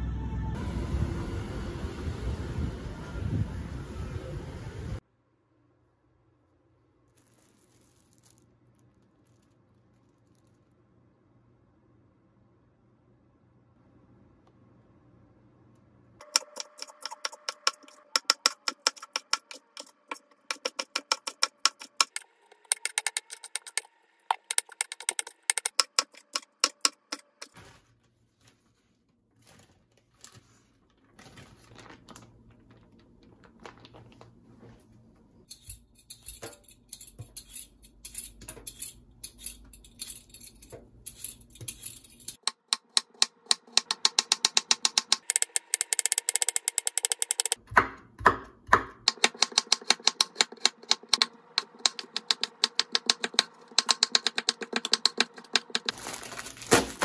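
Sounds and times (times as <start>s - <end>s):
plastic bag rustling: 7.0s - 10.8s, 27.5s - 35.2s, 55.8s - 57.0s
knife chopping on wooden board: 47.6s - 55.9s.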